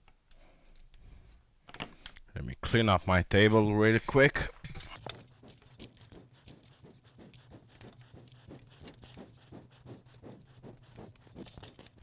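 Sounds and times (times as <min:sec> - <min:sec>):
hands brushing scraps on board: 0:05.0 - 0:12.0.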